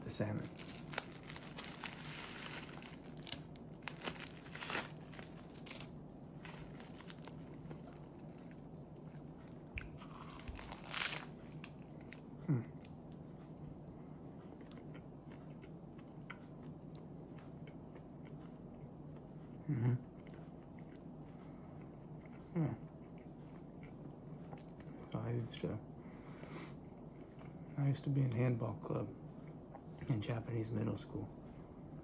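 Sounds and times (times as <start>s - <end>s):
falling hum: 0.0s - 19.9s
plastic wrapper crinkling: 0.2s - 7.9s, 10.4s - 11.7s
crunching bite: 0.4s - 12.2s
quiet chewing: 0.5s - 10.7s, 11.5s - 25.0s, 26.1s - 27.8s.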